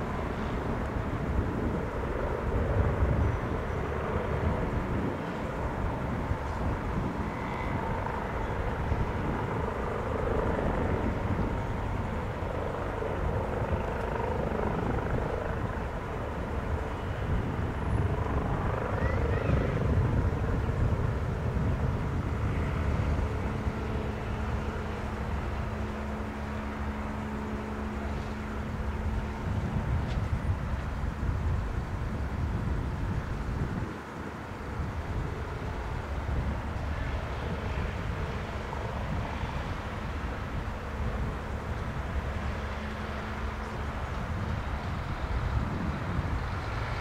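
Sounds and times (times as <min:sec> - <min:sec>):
helicopter hovering: 0:00.0 - 0:47.0.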